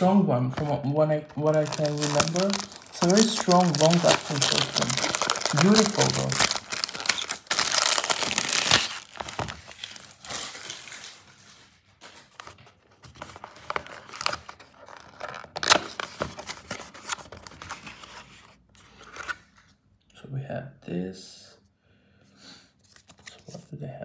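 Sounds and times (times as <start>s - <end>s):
cellophane wrapper crinkling: 1.4s - 11.3s.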